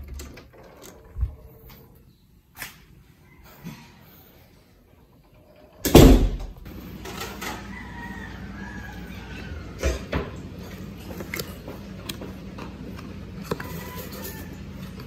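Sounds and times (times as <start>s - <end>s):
loud knock: 5.9s - 6.6s.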